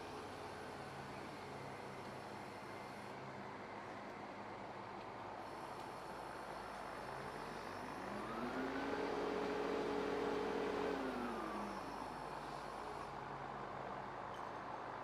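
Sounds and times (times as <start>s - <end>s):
crane engine revving: 7.1s - 13.2s.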